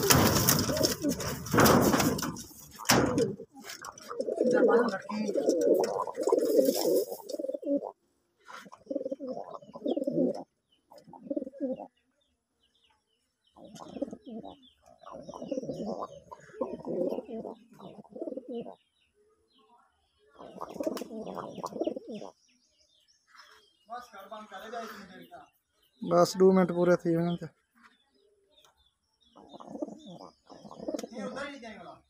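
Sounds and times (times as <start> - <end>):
pigeons cooing: 0.0 - 12.0, 13.5 - 19.0, 20.3 - 22.4, 29.2 - 31.6
small birds chirping: 0.0 - 32.0.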